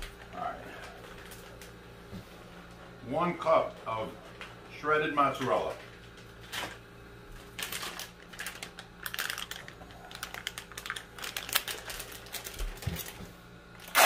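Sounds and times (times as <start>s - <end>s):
plastic bag crinkling: 7.5s - 13.3s.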